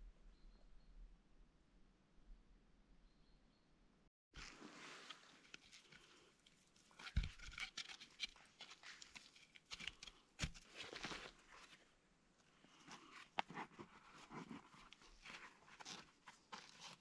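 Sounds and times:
cloth rustling: 4.4 - 7.4
hands handling sticks and cord: 4.4 - 17.0.

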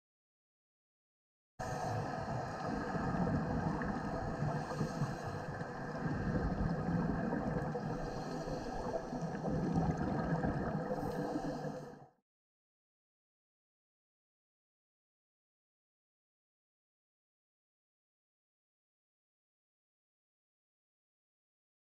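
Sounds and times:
underwater low rumble: 1.6 - 11.9.

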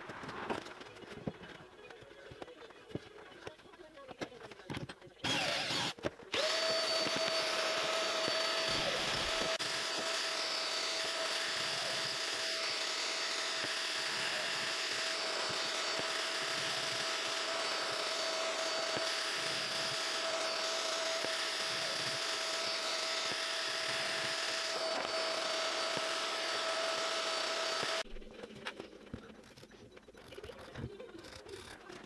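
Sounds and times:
shop vacuum whining: 5.2 - 28.1.

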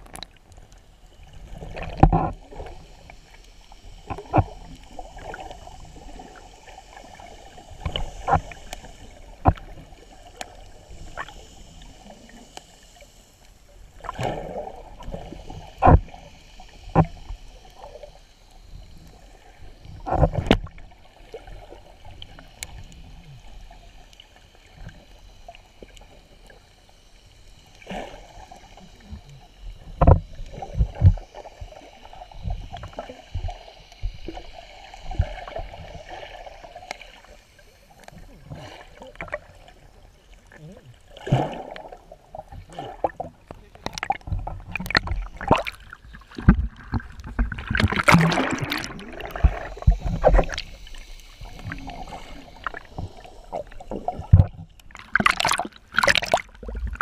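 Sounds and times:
muffled underwater swishing: 1.0 - 57.0
dull underwater knocks: 30.0 - 31.2, 46.4 - 50.6.

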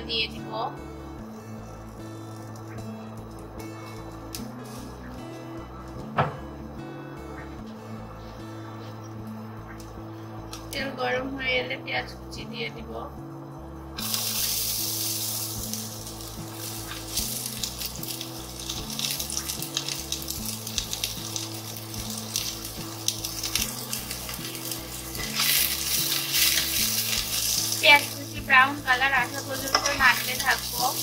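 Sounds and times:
onions sizzling in hot oil: 1.8 - 5.2, 14.0 - 31.0
spatula stirring onions: 14.0 - 31.0.

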